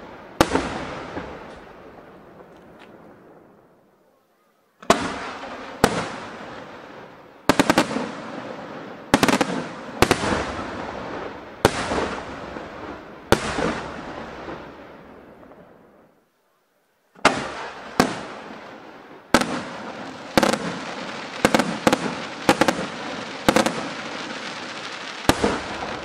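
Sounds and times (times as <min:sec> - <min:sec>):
firework shells bursting: 0:19.4 - 0:26.0.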